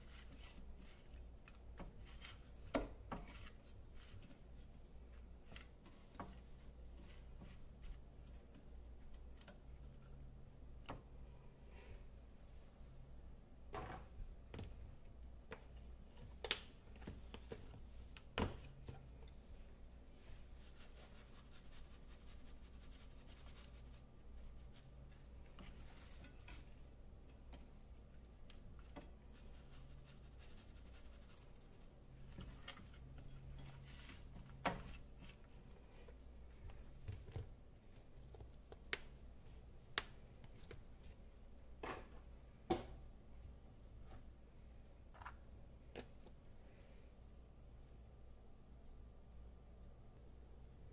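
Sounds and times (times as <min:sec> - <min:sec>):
hands rubbing fish: 0:20.5 - 0:25.1.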